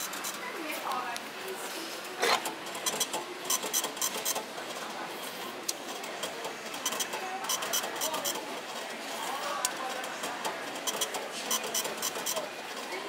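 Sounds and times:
vending machine clack: 0:02.2 - 0:05.1, 0:05.7 - 0:09.0, 0:09.6 - 0:13.0
rapid clicking and rattling: 0:02.4 - 0:13.0.

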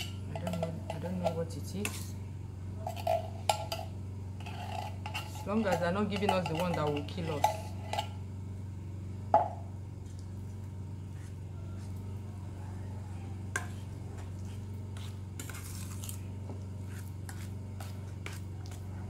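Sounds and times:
metal spoon scraping a pot: 0:00.0 - 0:02.2, 0:02.8 - 0:08.2, 0:14.5 - 0:16.3.

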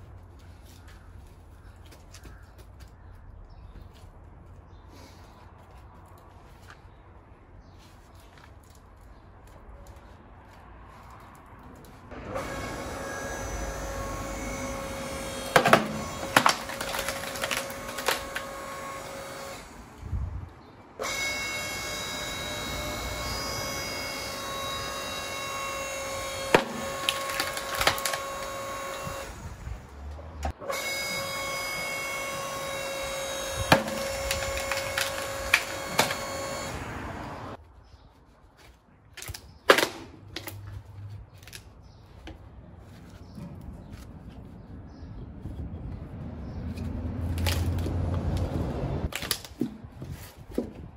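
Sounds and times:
log splitter motor hum: 0:12.1 - 0:19.8, 0:21.0 - 0:37.6
log splitting cracks: 0:15.2 - 0:19.6, 0:26.2 - 0:29.3, 0:33.2 - 0:36.7, 0:39.1 - 0:42.3, 0:46.8 - 0:50.9.

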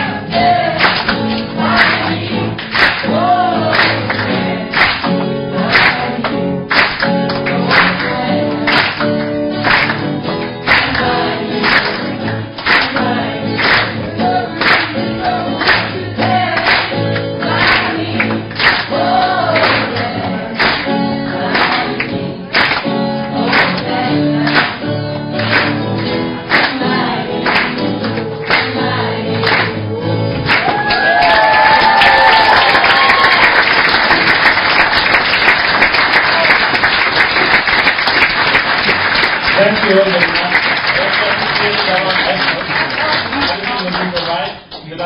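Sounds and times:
group singing: 0:00.0 - 0:09.1, 0:09.9 - 0:31.1
guitars strummed: 0:00.0 - 0:30.7
hand-clapping on the beat: 0:00.0 - 0:45.0
loud applause and cheering: 0:00.0 - 0:45.0.

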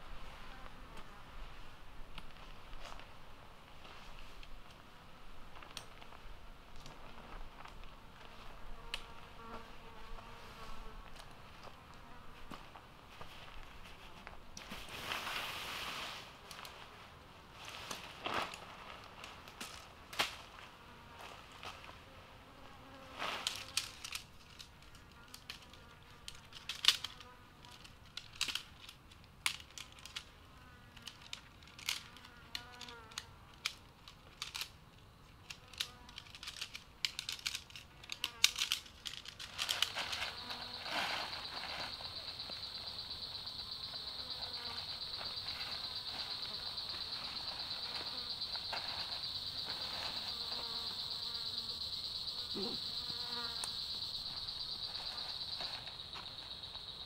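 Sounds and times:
high insect drone: 0:20.5 - 0:28.7, 0:35.4 - 0:57.0
tent pole sections clicking: 0:23.4 - 0:30.3, 0:31.0 - 0:40.4.

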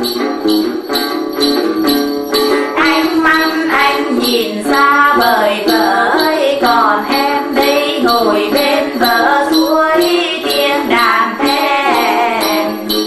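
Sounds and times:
plucked lutes: 0:00.0 - 0:13.0
small bells jingling: 0:00.0 - 0:13.0
women singing: 0:02.8 - 0:13.0.

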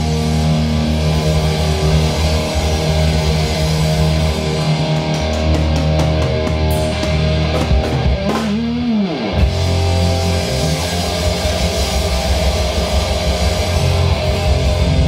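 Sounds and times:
drum kit: 0:00.0 - 0:15.0
electric guitar: 0:00.0 - 0:15.0.

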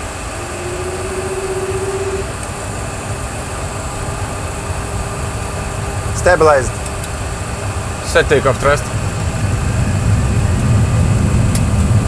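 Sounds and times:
jet engine spooling up: 0:00.0 - 0:02.5
rising engine whine: 0:00.0 - 0:04.2.

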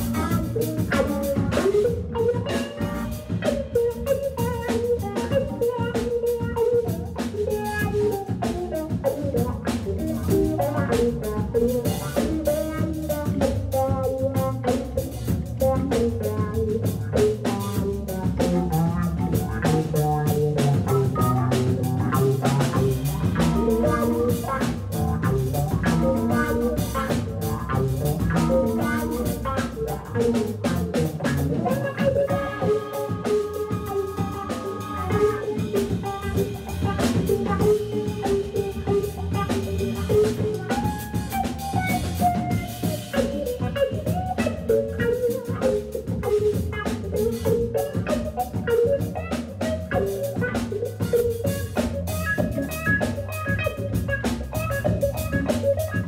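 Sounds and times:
drum kit beat: 0:00.0 - 0:56.0
electric guitar: 0:00.0 - 0:56.0
organ through rotating speaker: 0:15.0 - 0:56.0.

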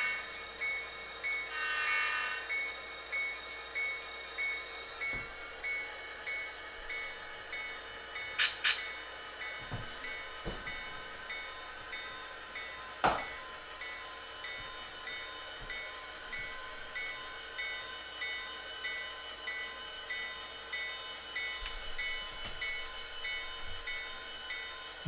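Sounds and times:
locomotive bell ringing: 0:00.0 - 0:25.0
sharp click: 0:08.4 - 0:08.9.

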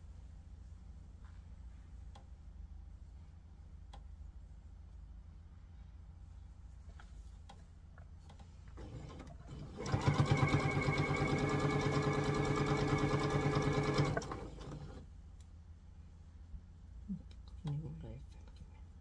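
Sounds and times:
sewing machine stitching: 0:08.8 - 0:15.0.

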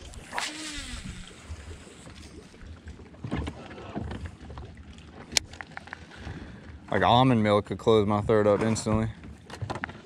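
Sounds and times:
fishing rod swish: 0:00.0 - 0:01.5
reel spool whirring: 0:00.0 - 0:02.4.

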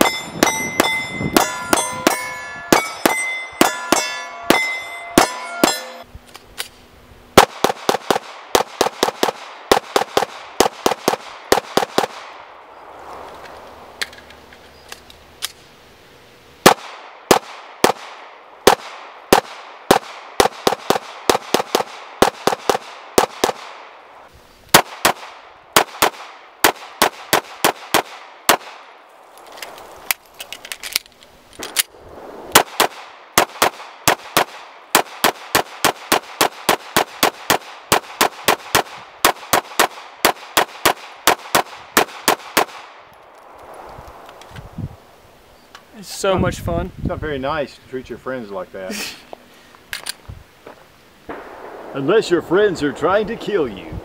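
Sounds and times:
pistol shots in fast strings: 0:32.5 - 0:42.8.

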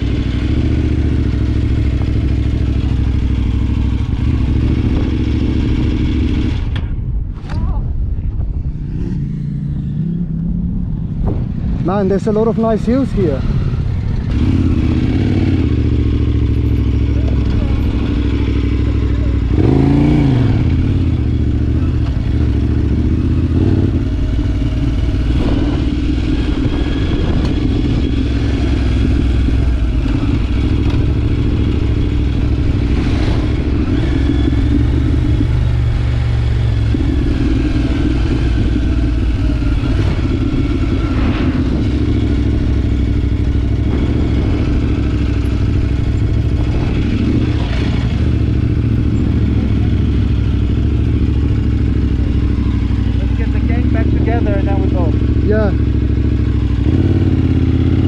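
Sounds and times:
motorcycle engine running: 0:00.0 - 0:07.3, 0:08.2 - 0:58.0.

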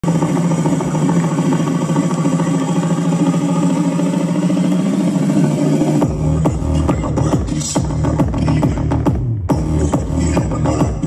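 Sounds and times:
loud buzzing drone: 0:00.0 - 0:08.2.

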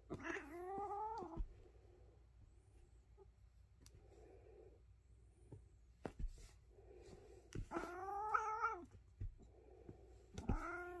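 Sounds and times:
cat meowing: 0:00.1 - 0:01.4, 0:07.7 - 0:08.8, 0:10.5 - 0:11.0.

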